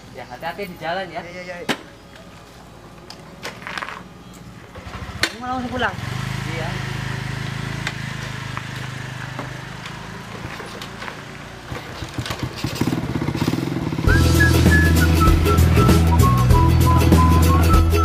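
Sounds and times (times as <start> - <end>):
motor scooter engine running: 4.8 - 16.2
music with whistle-like melody: 14.1 - 18.0.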